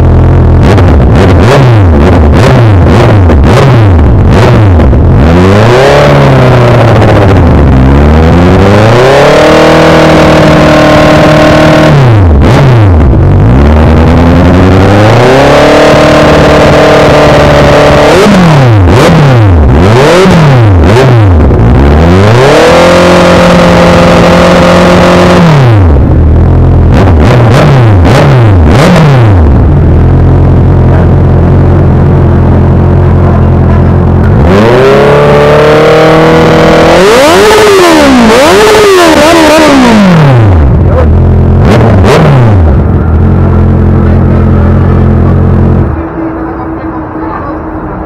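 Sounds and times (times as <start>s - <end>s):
motorcycle engine revving: 0.0s - 48.0s.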